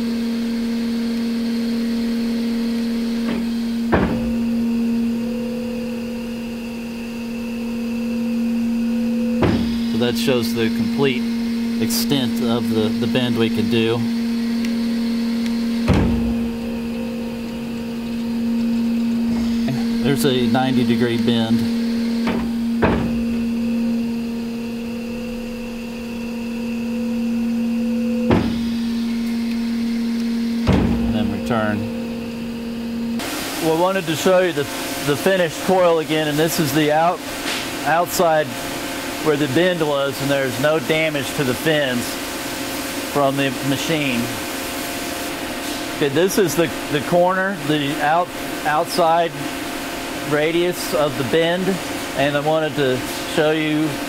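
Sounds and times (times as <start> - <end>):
machine drive humming: 0.0 - 54.0
motor whine: 0.0 - 54.0
machine clunk: 3.2 - 4.6, 9.3 - 9.9, 15.8 - 17.7, 22.2 - 23.6, 28.2 - 28.8, 30.6 - 31.5.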